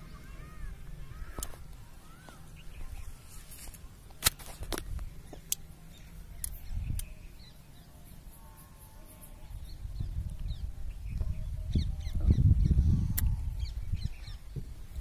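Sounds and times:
wind rumble on microphone: 6.4s - 7.2s, 9.4s - 15.0s.

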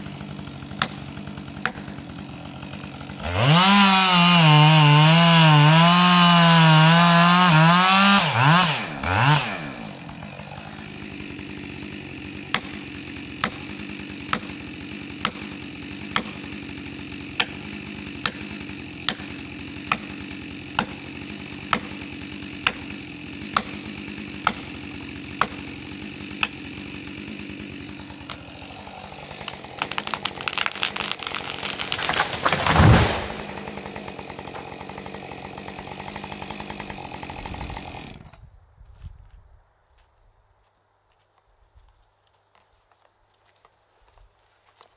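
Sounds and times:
chainsaw cutting and idling: 0.0s - 38.5s
tree crackling and snapping: 0.1s - 38.3s
axe striking felling wedge: 28.1s - 33.8s.

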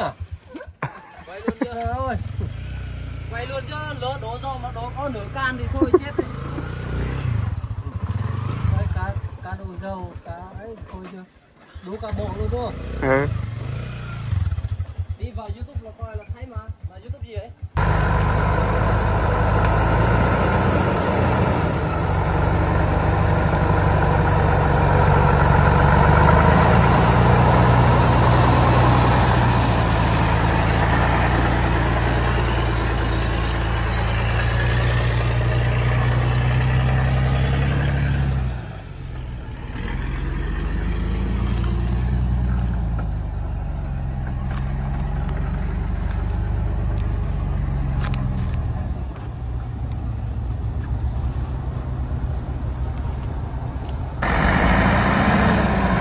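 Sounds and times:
truck engine running: 17.7s - 56.0s.

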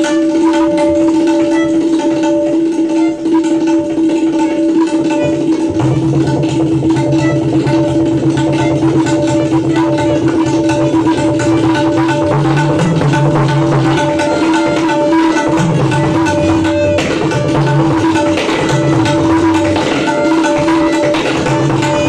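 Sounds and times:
tabla treble drum rolling strokes: 0.0s - 22.0s
bass drum strokes bending in pitch: 5.5s - 20.0s.

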